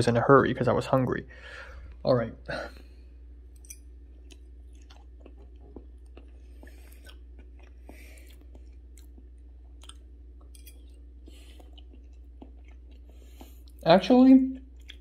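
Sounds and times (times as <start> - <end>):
low hum: 0.0 - 14.0
person chewing: 3.5 - 13.8, 14.5 - 15.0.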